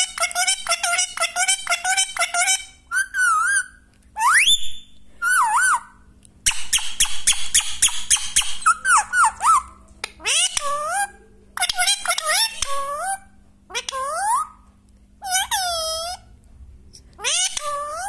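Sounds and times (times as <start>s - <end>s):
parrot whistling: 2.4s - 11.1s.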